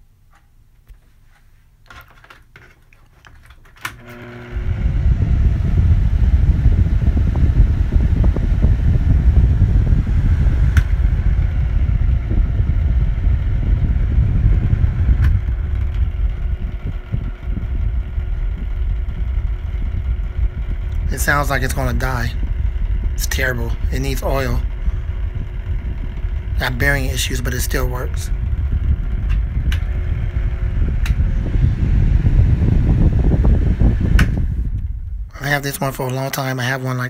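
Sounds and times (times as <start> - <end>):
fan low rumble: 0.0 - 37.0
fan switch click: 10.7 - 11.0, 29.2 - 29.9, 31.0 - 31.2, 34.1 - 34.9.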